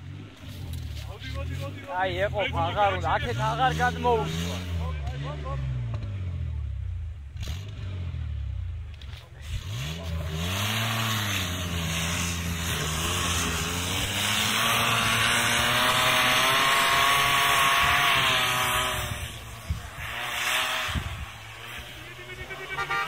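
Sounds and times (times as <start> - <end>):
suv engine revving: 0.0 - 23.0
spinning tyres throwing snow: 0.1 - 2.2, 8.9 - 23.0.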